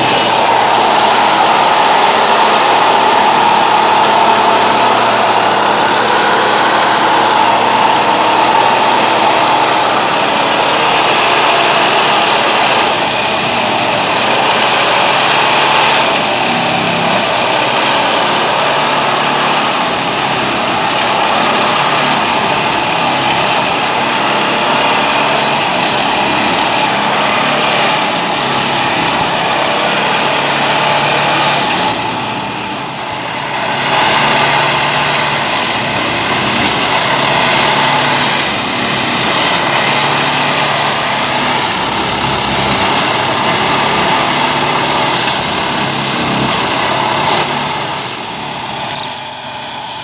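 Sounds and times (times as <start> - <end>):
track machine running: 0.0 - 50.0.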